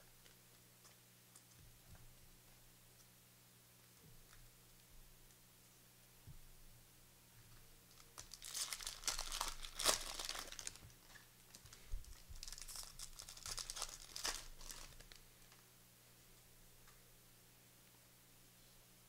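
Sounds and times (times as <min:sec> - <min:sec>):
wrapper torn open and crinkled: 0:07.9 - 0:15.6.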